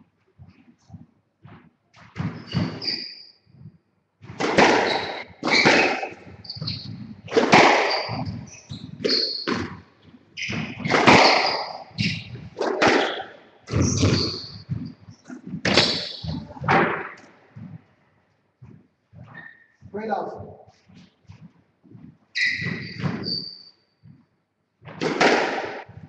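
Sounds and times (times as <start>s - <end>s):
shoe squeaks: 2.2s - 3.8s, 4.5s - 17.9s, 18.7s - 24.4s
squash ball thuds: 3.6s - 17.9s, 18.6s - 23.4s, 24.8s - 26.0s.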